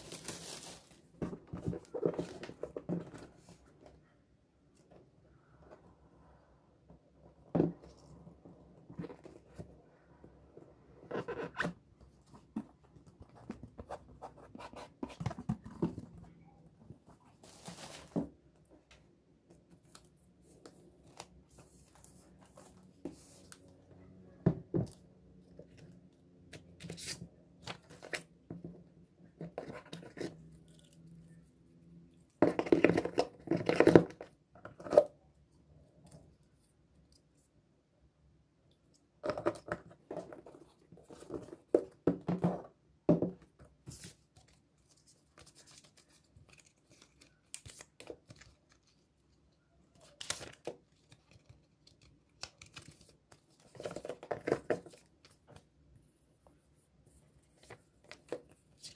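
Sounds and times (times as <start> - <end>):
cardboard packaging rustling: 0.0 - 3.3.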